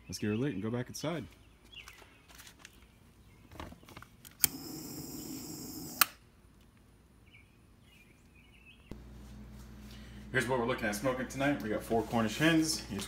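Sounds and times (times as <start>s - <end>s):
torch lighter hissing: 4.4s - 6.1s
torch lighter clicking: 4.4s - 6.2s.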